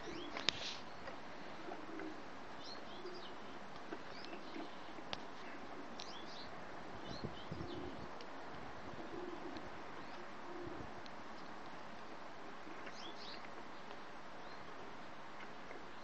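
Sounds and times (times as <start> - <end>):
pigeons cooing: 0.0 - 6.0, 7.0 - 8.2, 8.8 - 11.0, 12.5 - 13.4
finches chirping: 2.6 - 8.1.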